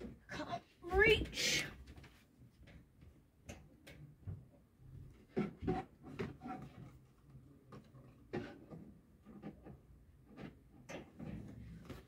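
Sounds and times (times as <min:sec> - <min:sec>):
rustling of items: 0:00.0 - 0:02.9.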